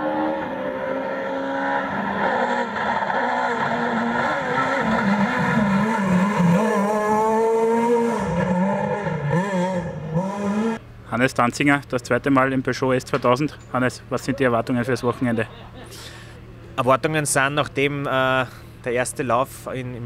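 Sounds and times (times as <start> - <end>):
rally car engine revving: 0.0 - 10.8.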